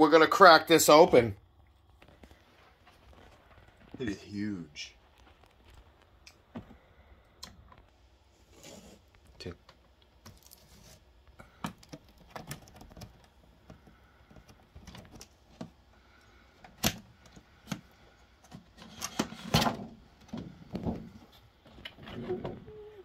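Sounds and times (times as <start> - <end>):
plastic packaging rustling: 10.2 - 11.2.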